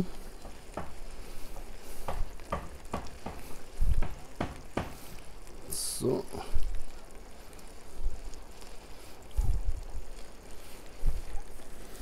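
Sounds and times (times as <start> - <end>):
pot sizzling: 0.0 - 12.0.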